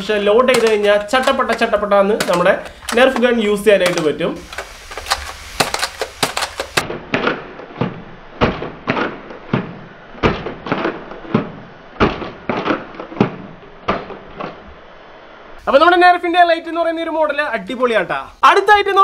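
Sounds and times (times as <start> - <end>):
toy blaster plastic clacks: 0.5 - 6.8.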